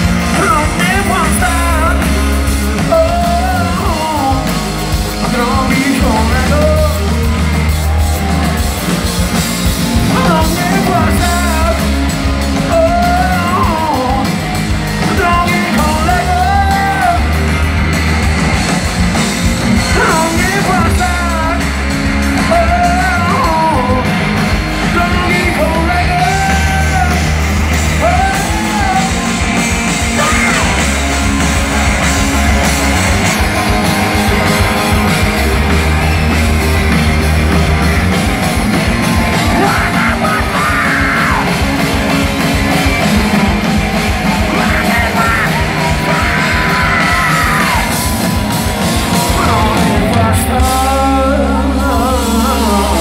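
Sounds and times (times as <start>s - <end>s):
live rock band playing: 0.0s - 53.0s
person singing and shouting: 0.1s - 4.6s, 10.0s - 17.5s, 19.8s - 21.8s, 22.4s - 24.2s, 24.8s - 31.0s, 38.8s - 42.0s, 43.1s - 53.0s.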